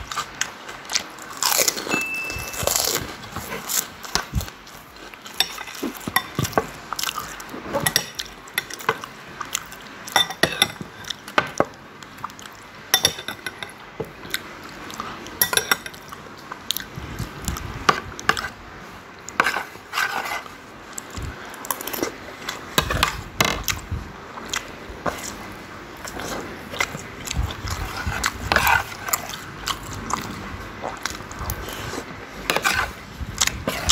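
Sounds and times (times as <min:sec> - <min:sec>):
metal spoon scraping plate: 0:19.4 - 0:20.5.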